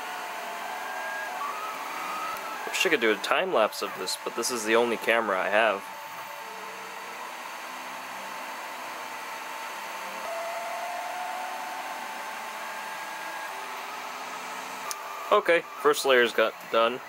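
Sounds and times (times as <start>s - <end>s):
printer fan whir: 0.0s - 17.0s
stepper motors whining: 0.0s - 17.0s.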